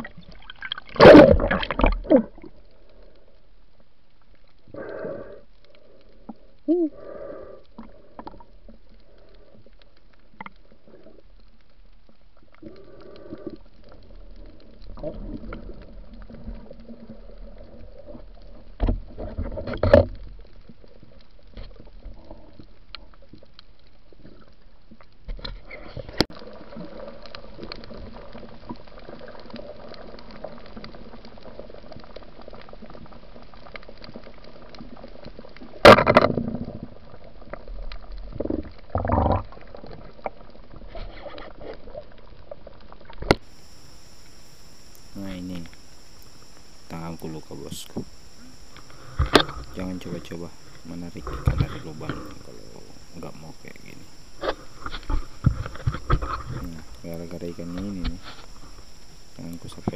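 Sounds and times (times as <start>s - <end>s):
underwater clicks: 0.0s - 3.2s, 32.1s - 40.5s, 42.8s - 59.9s
muffled underwater bubbling hiss: 4.6s - 11.7s, 12.4s - 24.7s, 25.6s - 59.9s.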